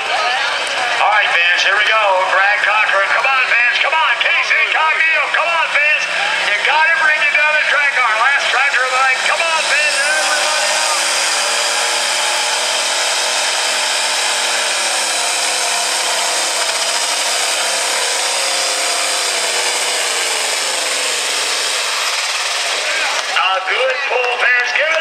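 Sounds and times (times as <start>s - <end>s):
tractor diesel engine running: 0.0s - 25.0s.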